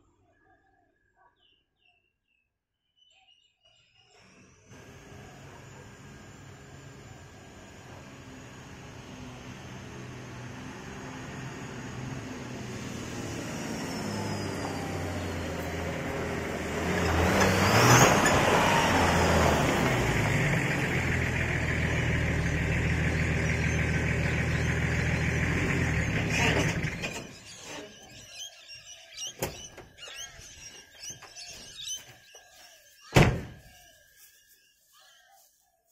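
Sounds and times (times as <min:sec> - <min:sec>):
diesel engine running: 0:04.2 - 0:28.3
loud thump: 0:33.1 - 0:33.6.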